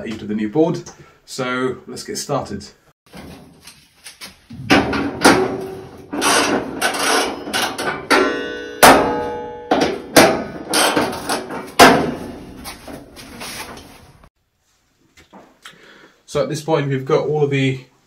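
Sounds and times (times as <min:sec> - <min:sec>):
tools clanking on steel panel: 0:04.6 - 0:13.2.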